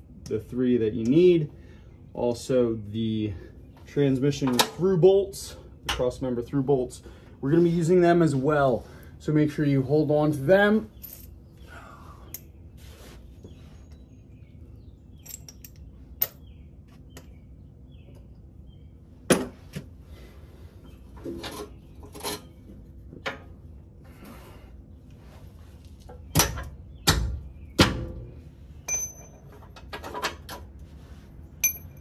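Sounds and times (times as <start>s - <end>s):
tools clinking on metal: 11.0s - 11.4s, 15.2s - 16.4s, 28.9s - 29.8s, 31.6s - 32.0s.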